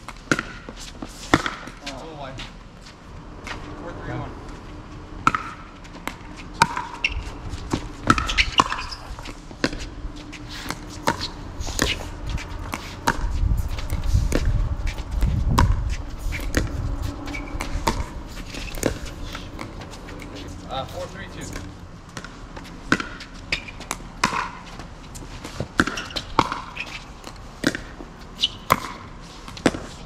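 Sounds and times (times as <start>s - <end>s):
ball bouncing on court: 0.2s - 1.8s, 5.2s - 9.9s, 10.6s - 15.8s, 21.5s - 24.8s, 25.6s - 30.0s
low rumble: 2.3s - 22.9s.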